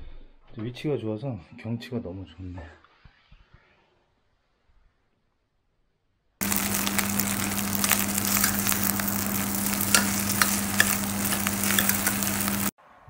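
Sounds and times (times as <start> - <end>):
rice sizzling in a pan: 6.4 - 12.7
steady hum: 6.4 - 12.7
utensil clicking on a pan: 6.4 - 12.7.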